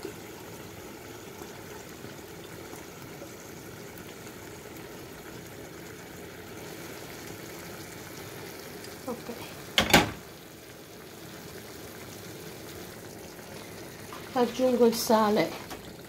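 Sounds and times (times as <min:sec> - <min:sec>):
meat sizzling in oil: 0:00.0 - 0:16.0
faint pops of frying oil: 0:09.7 - 0:10.4.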